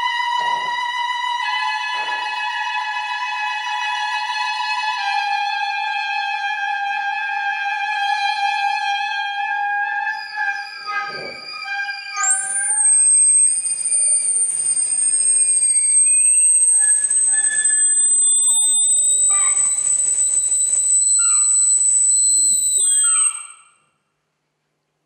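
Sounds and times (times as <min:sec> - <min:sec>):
shrill high whistle-like tone: 0:00.0 - 0:02.6, 0:07.8 - 0:24.1
held saxophone tone: 0:10.1 - 0:23.7
slowly rising tone: 0:12.2 - 0:23.6.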